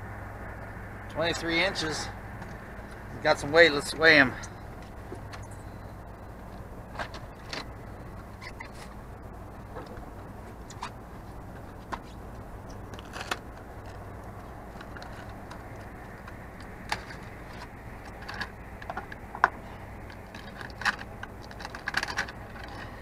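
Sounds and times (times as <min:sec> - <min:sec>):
steady low hum: 0:00.0 - 0:23.0
fishing gear clicking and rattling: 0:11.6 - 0:23.0.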